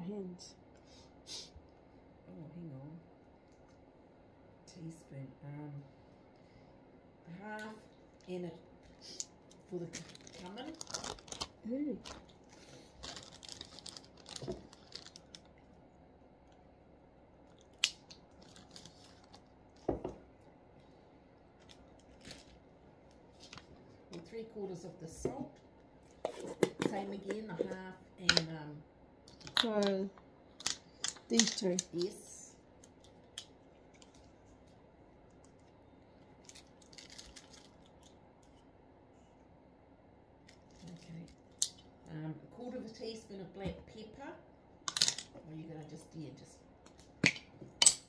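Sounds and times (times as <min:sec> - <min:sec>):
plastic bag crinkling: 0:08.8 - 0:15.7, 0:17.5 - 0:19.5, 0:21.6 - 0:22.6, 0:36.4 - 0:38.1.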